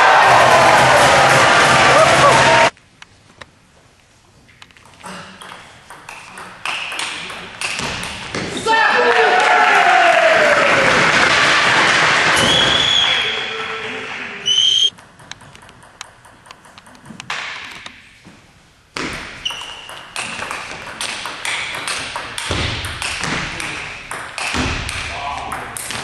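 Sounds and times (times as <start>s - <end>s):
crowd noise: 0.0s - 2.7s
ball clicking on bats and table: 4.6s - 8.4s, 14.9s - 18.0s, 19.4s - 26.0s
shoe squeaks on floor: 14.4s - 15.0s, 19.4s - 20.0s
ping pong ball ticking on table: 14.9s - 17.5s.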